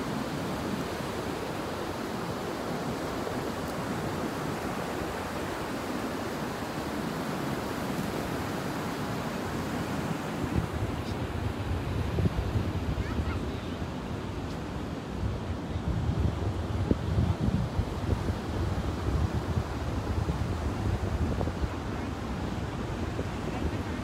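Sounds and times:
wind buffeting microphone: 10.3s - 24.0s.

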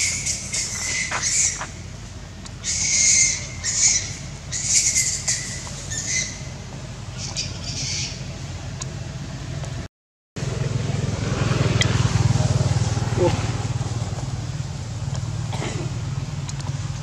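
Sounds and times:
high-pitched squawking animal calls: 0.0s - 1.7s, 2.6s - 6.6s, 7.2s - 8.3s
steady low hum: 0.0s - 17.0s.

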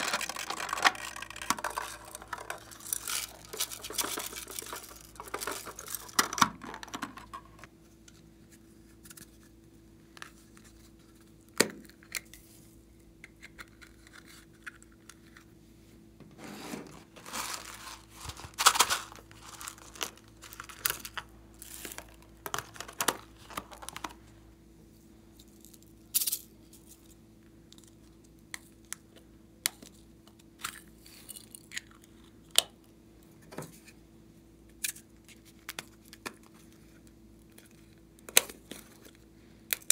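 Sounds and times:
plastic bag crinkling: 0.0s - 7.7s, 17.0s - 24.2s
faint steady hum: 0.0s - 39.9s.

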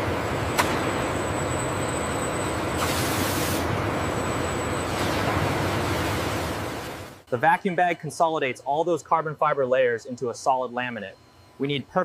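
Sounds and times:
factory machinery running: 0.0s - 7.5s
high whine: 0.0s - 12.0s
air hiss: 2.8s - 3.7s.

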